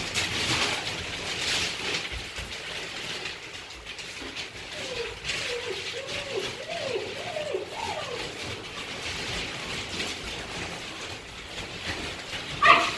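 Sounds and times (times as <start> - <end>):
pellets rattling under paws: 0.0 - 12.9
puppy whining: 4.3 - 9.6.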